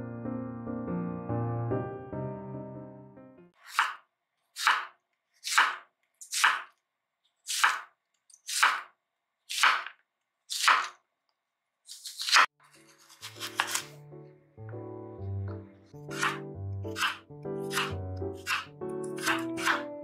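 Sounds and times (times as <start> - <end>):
piano music: 0.0 - 3.6, 12.7 - 20.0
knife slicing onion on cutting board: 3.6 - 6.8, 7.4 - 11.0, 11.9 - 14.0, 16.0 - 19.9.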